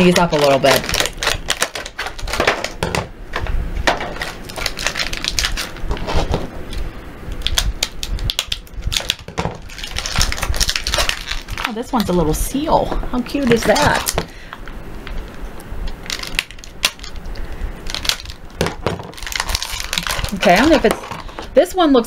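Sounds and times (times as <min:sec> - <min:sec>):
scissors cutting plastic: 0:00.0 - 0:03.0, 0:04.0 - 0:06.4, 0:07.3 - 0:12.2, 0:13.4 - 0:14.2, 0:15.9 - 0:21.4
plastic packaging crackling: 0:00.0 - 0:21.6.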